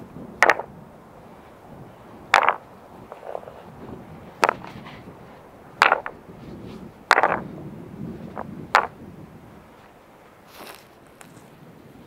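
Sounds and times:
stones clacking together: 0.4 - 0.7, 2.2 - 3.7, 4.4 - 5.1, 5.7 - 6.2, 7.0 - 7.5, 8.3 - 9.0.

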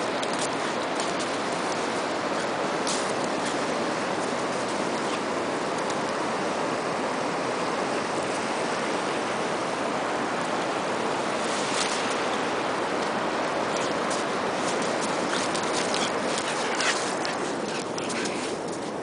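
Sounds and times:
ocean surf: 0.0 - 19.0.

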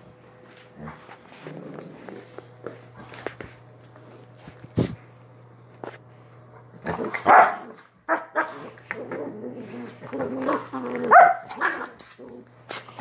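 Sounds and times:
dogs growling: 0.7 - 3.0, 6.6 - 13.0
small dogs barking: 7.1 - 8.6, 11.0 - 12.0.

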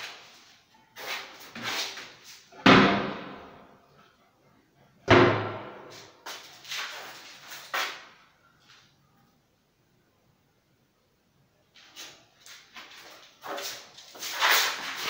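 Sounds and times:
cabinet doors banging shut: 5.1 - 5.8.

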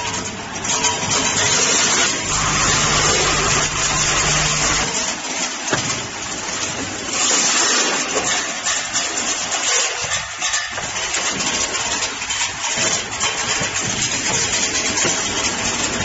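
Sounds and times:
small metal parts clattering in machine: 0.0 - 16.0.

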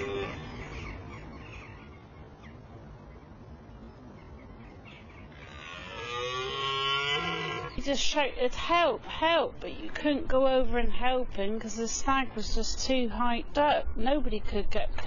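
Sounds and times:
deer stag roaring: 0.0 - 0.6, 5.3 - 7.8.

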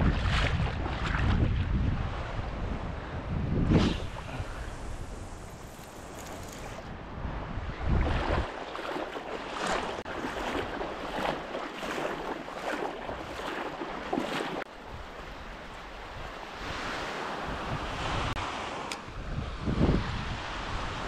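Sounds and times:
wind rumble on microphone: 0.0 - 21.0
splashing steps in shallow surf: 8.0 - 14.7.

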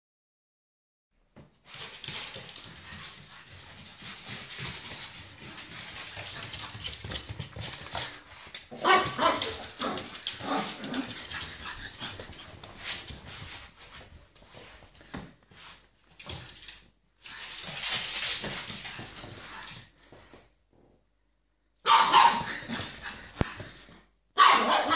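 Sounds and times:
puppy barking and yipping: 8.7 - 11.2, 21.8 - 22.8, 24.4 - 24.9.

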